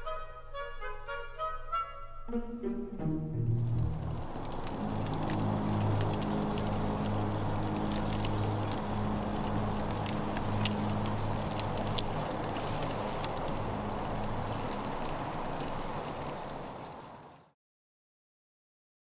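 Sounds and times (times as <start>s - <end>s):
fire crackling and popping: 3.4s - 17.6s.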